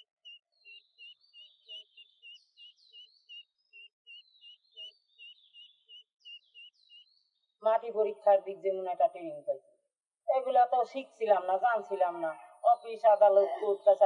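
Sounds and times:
ducklings peeping: 0.0s - 7.3s.

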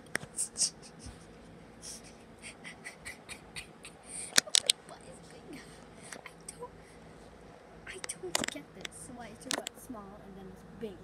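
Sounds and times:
sharp clicks: 8.0s - 9.7s
light scratching ticks: 8.0s - 9.8s.

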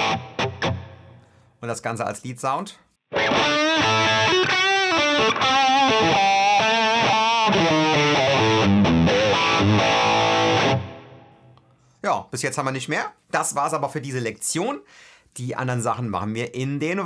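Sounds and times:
distorted electric guitar lead: 0.0s - 1.2s, 3.1s - 11.5s.

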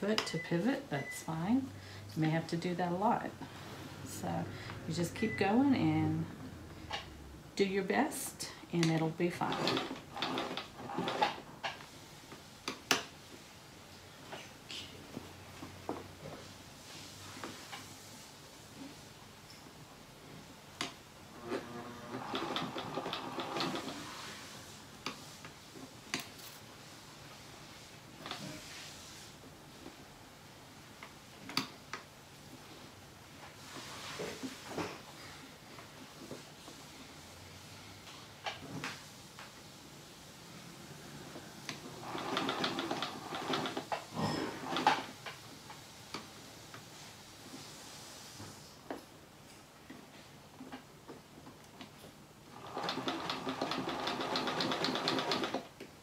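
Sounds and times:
sewing machine stitching: 9.3s - 11.4s, 21.3s - 24.2s, 41.8s - 45.1s, 52.5s - 55.7s
sewing machine needle ticking: 52.6s - 55.6s.

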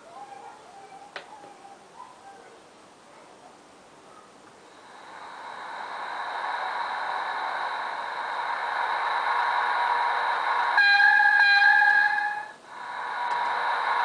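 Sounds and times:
loud steady tones: 4.6s - 14.0s
model locomotive whirring: 4.7s - 14.0s.

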